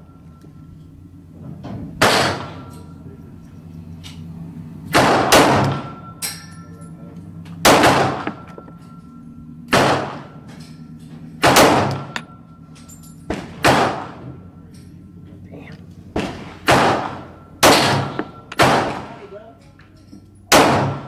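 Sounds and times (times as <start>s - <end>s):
pistol shots with echo: 2.0s - 2.8s, 4.9s - 6.4s, 7.6s - 8.6s, 9.7s - 10.4s, 11.4s - 12.3s, 13.3s - 14.3s, 16.1s - 19.3s, 20.5s - 21.0s.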